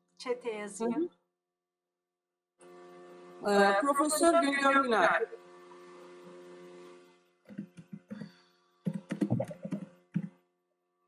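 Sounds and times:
keyboard typing: 8.9s - 10.3s.

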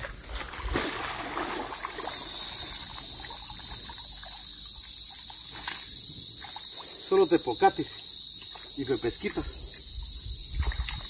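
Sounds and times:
water sloshing and dripping: 0.0s - 7.4s, 10.5s - 11.0s
high-pitched insect buzz: 0.0s - 11.0s.

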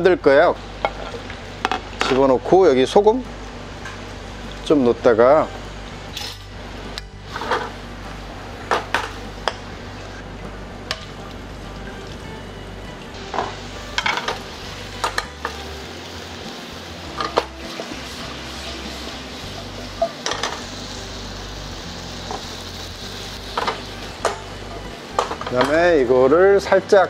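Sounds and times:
food sizzling: 0.0s - 27.0s
wok and utensils clinking: 5.5s - 7.8s, 8.6s - 10.2s, 13.2s - 16.2s, 17.0s - 18.0s, 18.6s - 20.7s, 23.5s - 25.8s.

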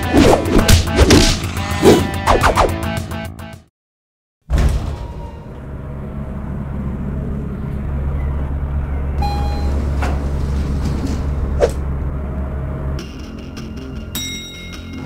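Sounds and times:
elevator hum and rumble: 4.5s - 15.0s
brief tone: 8.1s - 10.0s.

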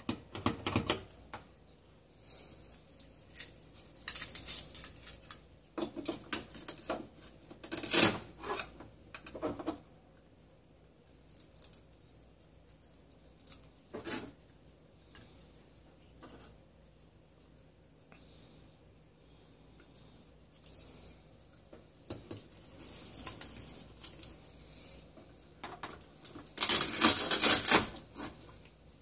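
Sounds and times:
velcro pulled apart: 7.6s - 8.7s, 26.4s - 28.2s.

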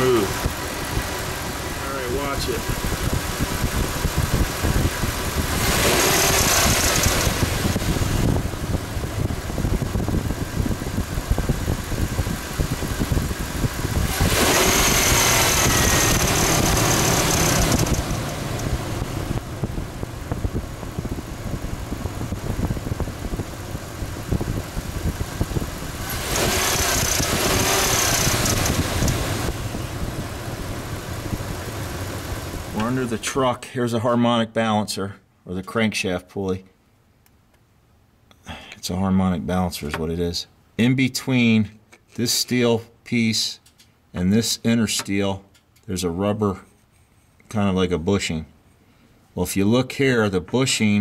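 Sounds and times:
car engine idling: 0.0s - 33.4s
loud hissing: 14.0s - 18.5s, 26.0s - 29.5s.

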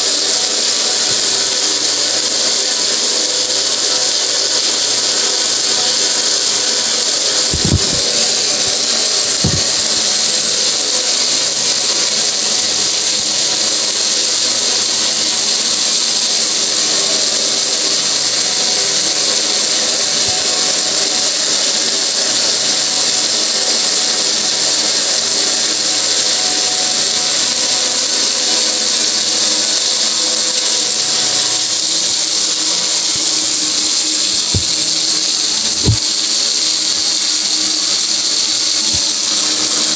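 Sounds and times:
hose spraying water jet: 0.0s - 39.9s
low thumps: 7.5s - 8.5s, 34.6s - 35.0s, 35.8s - 36.1s.

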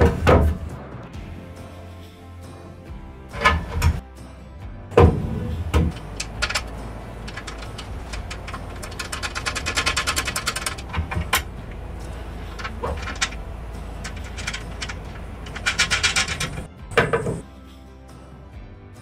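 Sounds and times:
metal trim clicks and knocks: 5.0s - 17.4s
rattling run of clicks: 5.8s - 17.4s.

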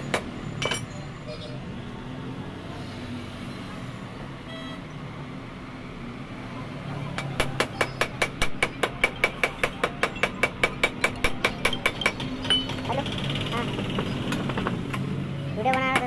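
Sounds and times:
hammer tapping on metal: 7.2s - 13.2s.

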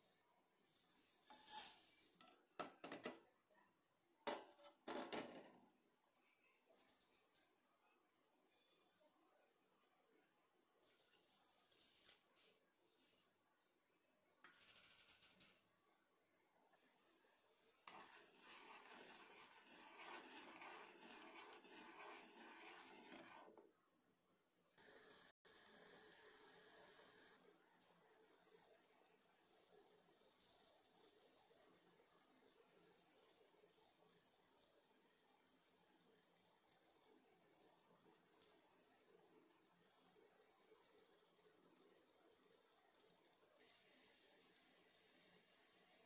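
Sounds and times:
sugar pouring into saucepan: 17.5s - 23.5s.

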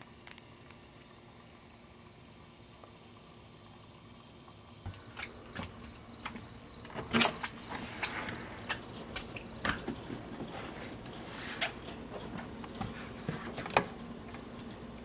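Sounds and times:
crickets chirping: 0.0s - 10.9s.

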